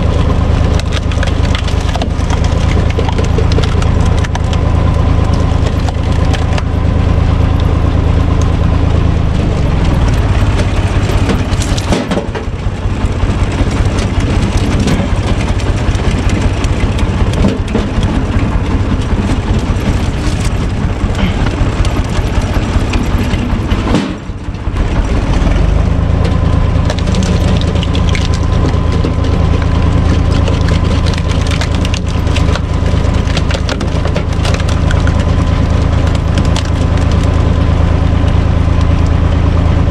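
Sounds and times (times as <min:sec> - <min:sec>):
tractor diesel engine running: 0:00.0 - 0:39.9
wood cracking and splintering: 0:00.0 - 0:39.9.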